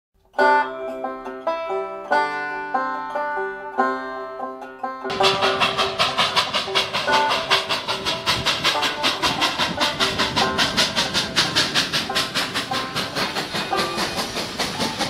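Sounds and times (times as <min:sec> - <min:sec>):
plucked banjo music: 0:00.2 - 0:15.0
steam locomotive chuffing: 0:05.1 - 0:15.0.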